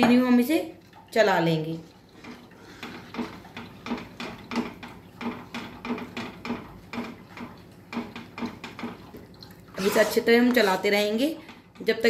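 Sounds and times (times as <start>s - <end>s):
steel spoon scraping a pan: 9.8s - 11.0s.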